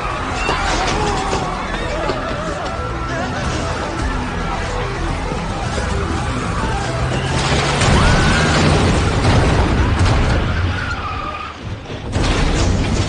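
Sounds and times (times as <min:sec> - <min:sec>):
brakes squealing: 0:00.0 - 0:12.1
tyres skidding: 0:00.0 - 0:13.0
truck tipping over crash: 0:07.2 - 0:13.0.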